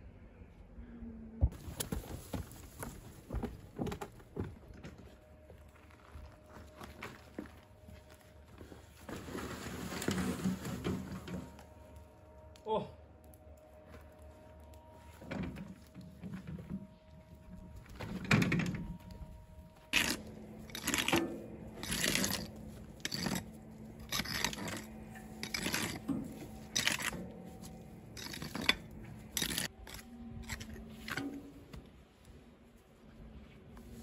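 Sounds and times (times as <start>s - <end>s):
soil scraped across concrete: 8.9s - 11.6s, 19.8s - 31.8s.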